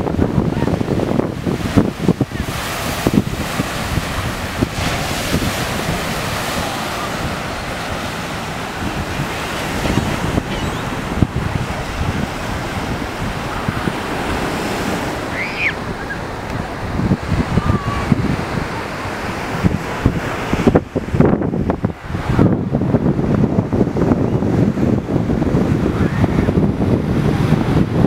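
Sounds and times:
surf breaking on beach: 0.0s - 28.0s
wind buffeting microphone: 0.0s - 28.0s.

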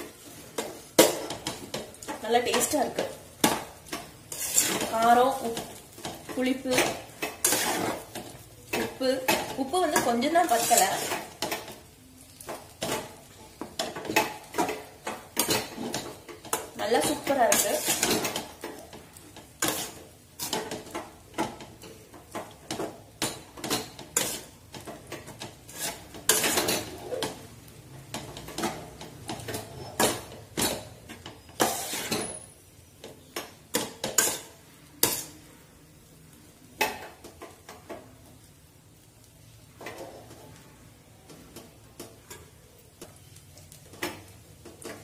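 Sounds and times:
spatula scraping a metal pot: 0.4s - 11.8s, 12.8s - 18.9s, 19.5s - 21.6s, 23.6s - 27.4s, 28.4s - 32.6s, 34.0s - 35.4s.

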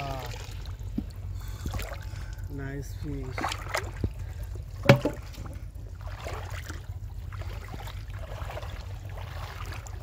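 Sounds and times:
steady low rumble: 0.0s - 10.0s
water swishing and lapping: 0.0s - 10.0s
metal pot pushed through water: 4.8s - 10.0s.

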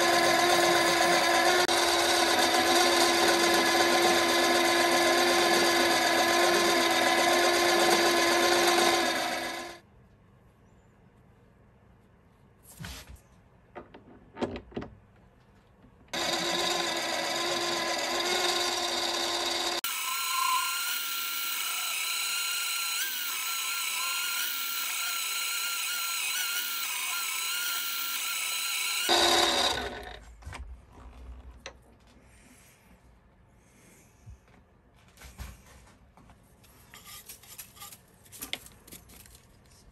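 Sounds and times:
lathe motor whine: 0.0s - 9.8s, 16.1s - 30.2s.

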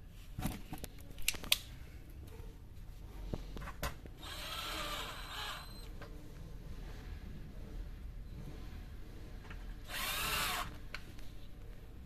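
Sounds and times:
cordless drill driving screw: 4.2s - 5.8s, 9.9s - 10.7s.

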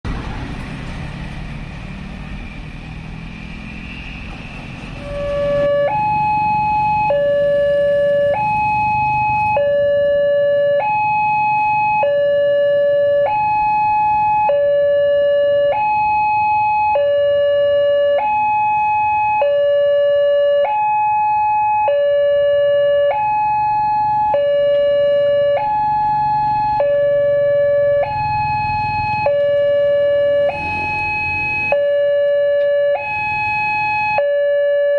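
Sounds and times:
road traffic rumble: 0.0s - 34.9s
level crossing two-tone alarm: 5.0s - 34.9s.

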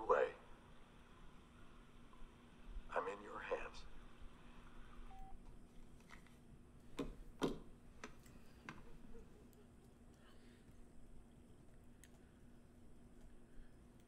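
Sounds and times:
faint clicks and knocks: 5.4s - 10.8s.

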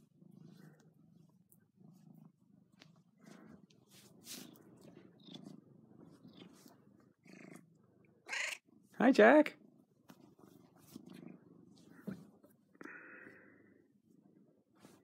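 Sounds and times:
rustling of fur and bedding: 0.0s - 7.3s, 9.8s - 12.7s, 14.0s - 15.0s
cat purring: 0.0s - 15.0s.

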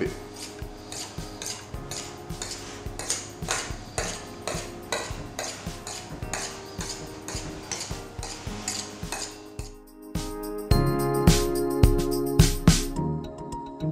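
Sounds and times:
knife scraping metal ring: 0.3s - 9.6s.

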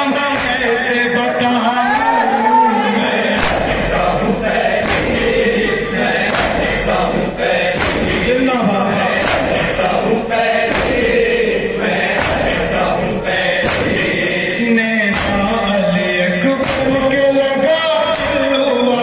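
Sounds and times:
men chanting over a microphone: 0.0s - 19.0s
chest striking in unison: 3.4s - 7.0s, 7.7s - 8.4s, 10.7s - 11.2s.

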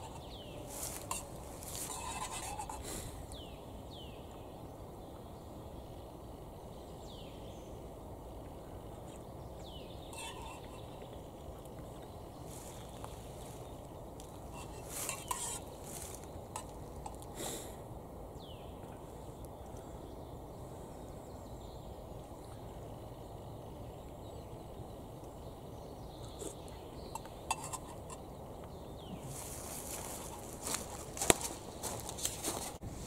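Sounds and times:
low outdoor background: 0.0s - 33.0s
spoon clinking against metal mug: 14.6s - 15.6s, 27.2s - 28.2s.

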